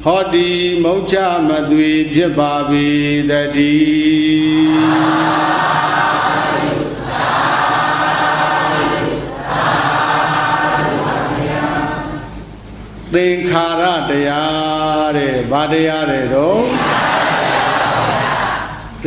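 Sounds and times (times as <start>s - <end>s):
group chanting in unison: 3.6s - 12.4s, 16.6s - 19.0s.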